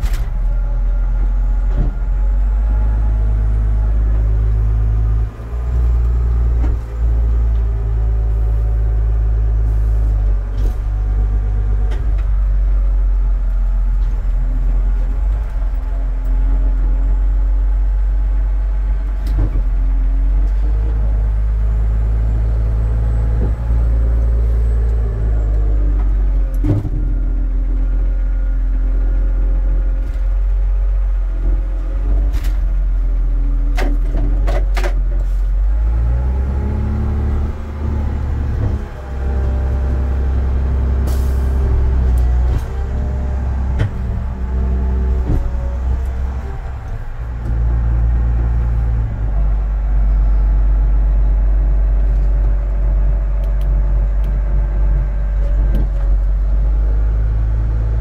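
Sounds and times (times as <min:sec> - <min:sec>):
engine droning: 0:00.0 - 0:58.0
sharp clicks and knocks: 0:33.8 - 0:35.3.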